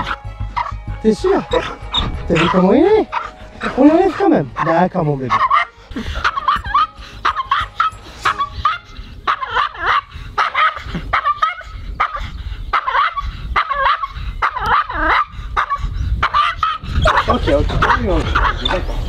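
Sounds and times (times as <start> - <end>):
small dog yapping: 8.2 - 18.8.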